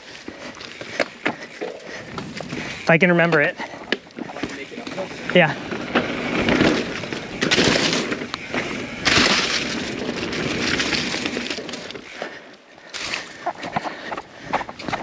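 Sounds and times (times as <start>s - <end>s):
bike rattling: 0.0s - 15.0s
bike tyres rolling over dirt: 0.0s - 15.0s
rough bike hits: 0.3s - 12.2s.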